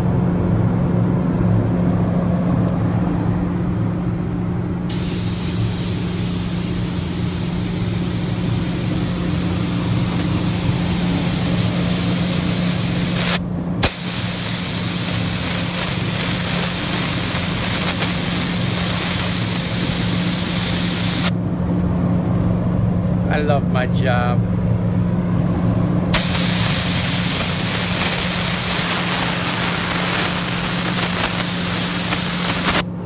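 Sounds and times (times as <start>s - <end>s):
steady low hum: 0.0s - 33.0s
paint spray gun hissing: 4.9s - 21.3s, 26.2s - 32.9s.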